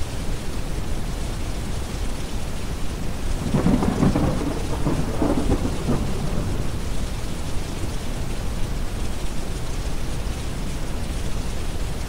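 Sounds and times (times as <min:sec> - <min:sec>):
steady rain: 0:00.0 - 0:12.0
thunder rolling: 0:03.4 - 0:07.3.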